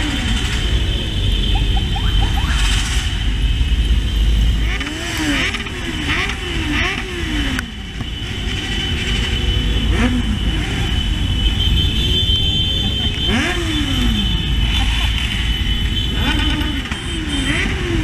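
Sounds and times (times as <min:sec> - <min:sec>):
motorcycle engines revving: 0:00.0 - 0:18.0.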